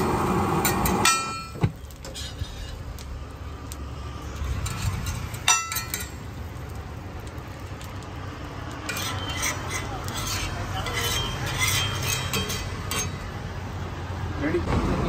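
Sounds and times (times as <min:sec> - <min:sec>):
metal spatula scraping griddle: 0:00.6 - 0:03.0, 0:04.3 - 0:06.4, 0:08.7 - 0:13.4
metal clang: 0:00.7 - 0:02.2, 0:04.6 - 0:06.2.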